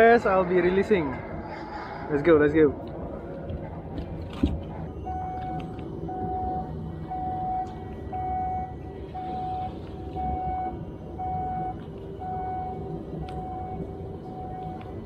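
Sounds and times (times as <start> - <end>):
steady low rumble: 0.0 - 15.0
electronic warning beeper: 4.9 - 15.0.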